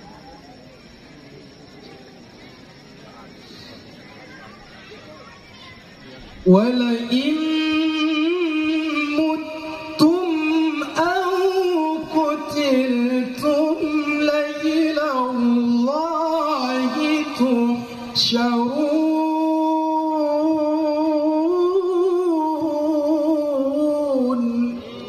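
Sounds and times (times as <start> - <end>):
man reciting melodically: 6.4 - 25.0.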